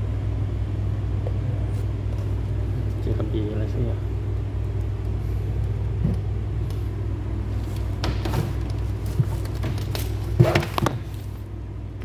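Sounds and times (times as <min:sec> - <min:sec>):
knocks of things handled: 0:07.8 - 0:11.3.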